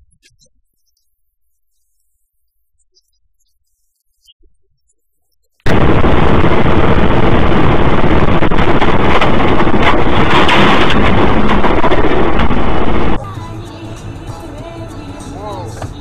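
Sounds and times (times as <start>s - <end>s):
distorted road and wind noise: 5.7s - 13.2s.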